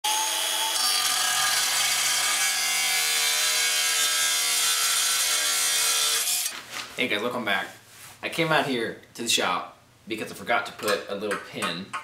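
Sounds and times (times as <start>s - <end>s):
grinder grinding steel: 0.1s - 6.6s.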